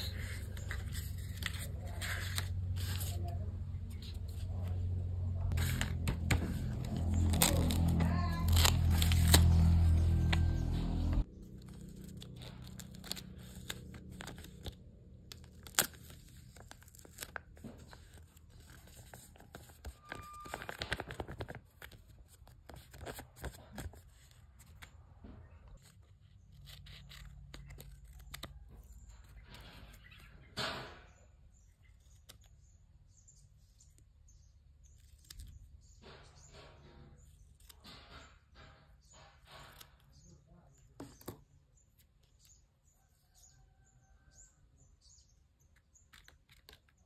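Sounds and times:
paper crinkling and rustling: 0.0s - 4.8s, 5.5s - 30.3s
paper tearing: 0.0s - 4.8s, 5.5s - 25.0s, 25.8s - 28.7s.

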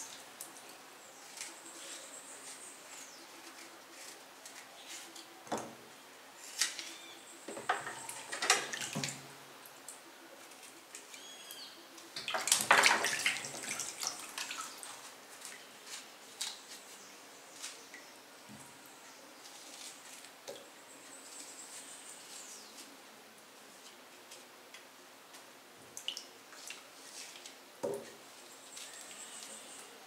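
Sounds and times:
water splashing in a plastic basin: 12.2s - 14.8s.

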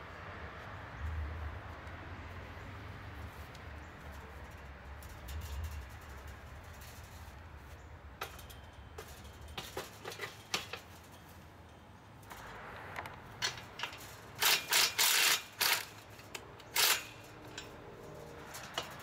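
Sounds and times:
chain-link gate clinking: 8.2s - 12.6s, 13.3s - 19.0s.

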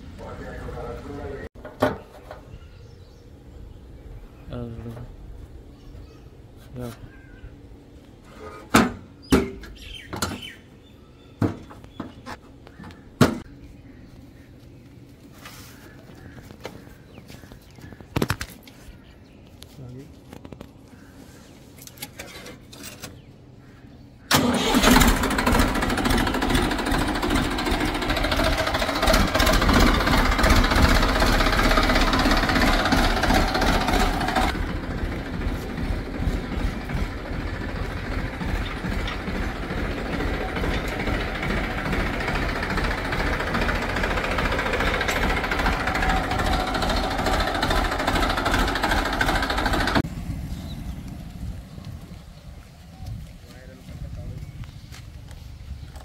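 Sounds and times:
tractor diesel engine: 0.0s - 3.1s, 24.3s - 52.4s.

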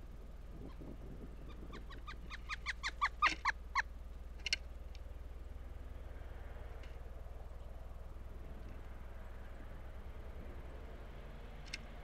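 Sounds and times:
woodpecker calling: 1.4s - 4.6s.

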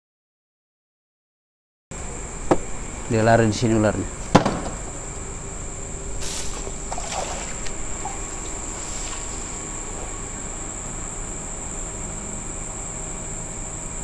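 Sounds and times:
night insects shrilling: 2.0s - 14.0s
leaves rustling: 4.1s - 11.3s
sharp knock: 4.3s - 4.8s.

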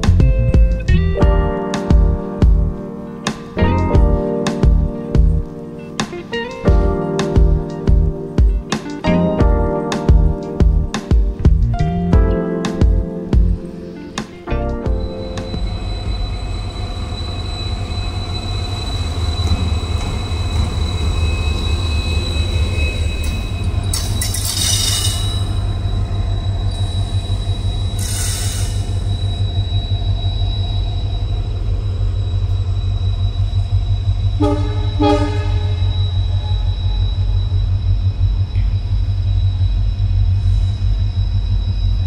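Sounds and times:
locomotive engines rumbling: 0.0s - 42.0s
hiss bursts: 28.0s - 29.1s
locomotive horn blasts: 34.4s - 36.7s.

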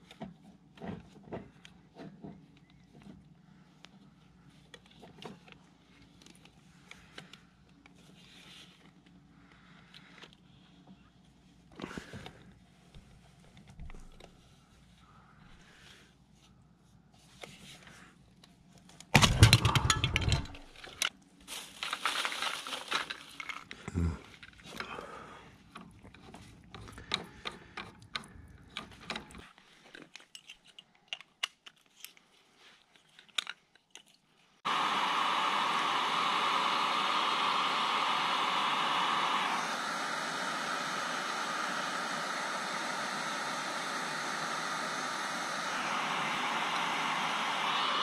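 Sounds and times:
steady hiss: 34.7s - 48.0s.

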